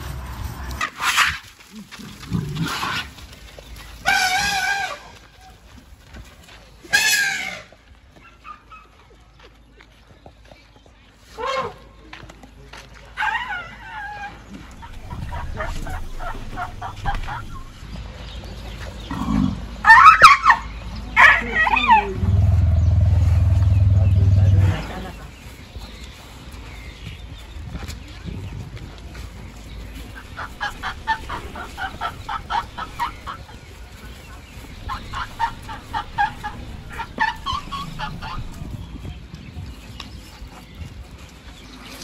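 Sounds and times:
bird calling: 14.7 - 18.0, 30.0 - 33.9, 34.5 - 39.0
elephants chirping: 14.7 - 18.0, 21.6 - 25.3, 30.2 - 39.0.

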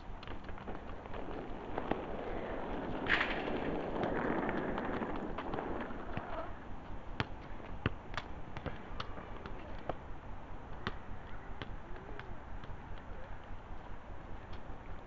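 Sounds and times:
football thuds on tarmac: 0.1 - 6.6.

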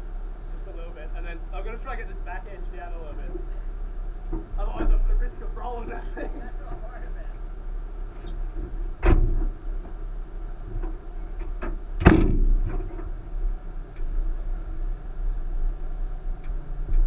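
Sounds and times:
sharp clunks: 8.2 - 10.0, 10.7 - 13.2.

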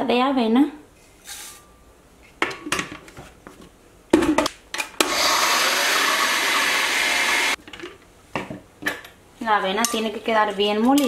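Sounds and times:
blender grinding oats: 5.0 - 7.6.

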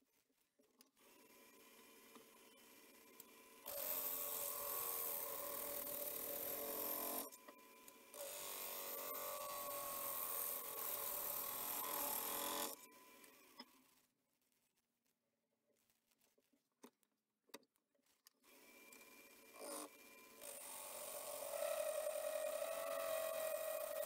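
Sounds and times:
gouge cutting wood on a lathe: 3.7 - 7.2, 8.1 - 12.8, 19.6 - 24.0
wood lathe running down: 20.4 - 24.0.

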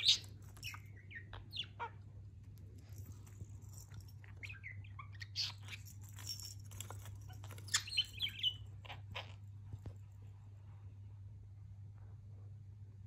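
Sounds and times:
budgerigar chirping and chattering: 0.0 - 2.1, 4.2 - 6.3, 7.3 - 9.4.

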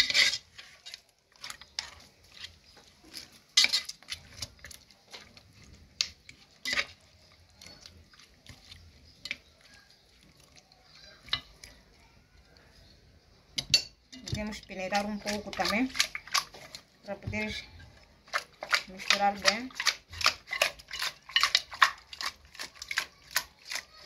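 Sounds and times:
spoon scraping metal pot: 0.0 - 10.0, 13.6 - 24.0.

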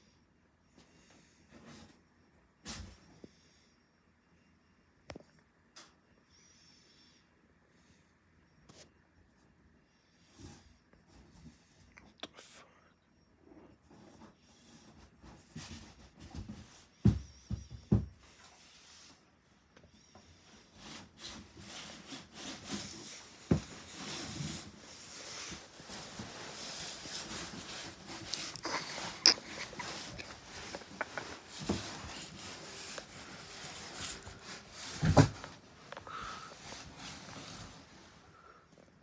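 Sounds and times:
knocks and thumps: 15.6 - 18.4, 23.4 - 24.2
cat scratching on cardboard: 20.5 - 35.2.

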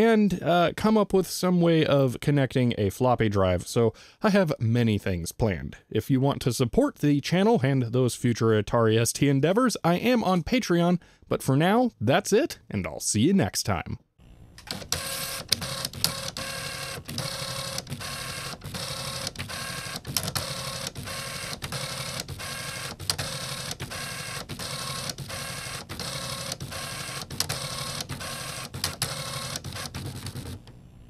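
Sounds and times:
dot matrix printer printing: 14.6 - 30.7.

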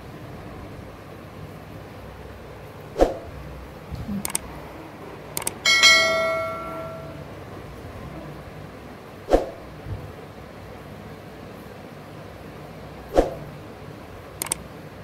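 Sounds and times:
mouse clicks: 4.2 - 4.4, 14.4 - 14.6
bell chime: 5.6 - 7.3.

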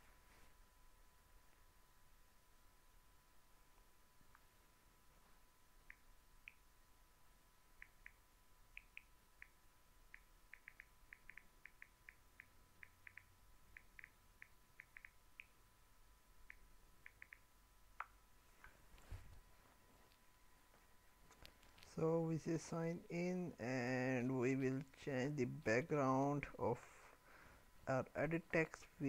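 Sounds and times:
thin whine: 18.6 - 29.0.

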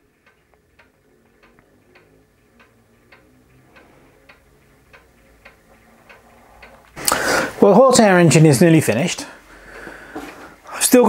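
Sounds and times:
low motor hum: 0.0 - 7.0
faint regular ticking: 0.0 - 7.2.

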